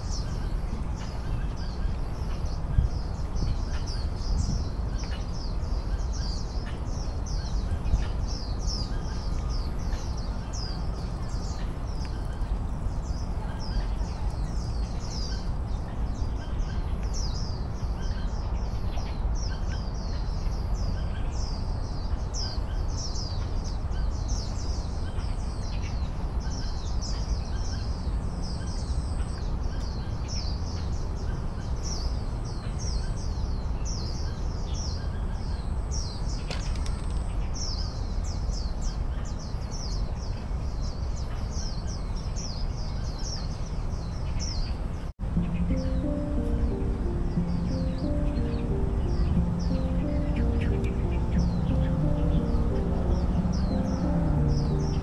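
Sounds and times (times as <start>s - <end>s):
small birds chirping: 0.0s - 55.0s
low background rumble: 43.6s - 55.0s.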